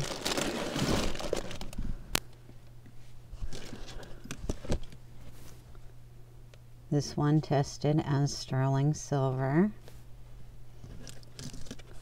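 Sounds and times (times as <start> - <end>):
plastic bag crinkling: 0.0 - 1.8, 3.4 - 4.8.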